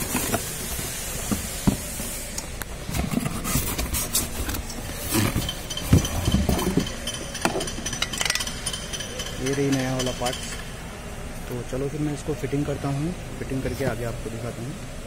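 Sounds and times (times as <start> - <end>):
cardboard rustling and scraping: 0.0 - 2.1, 2.8 - 6.9.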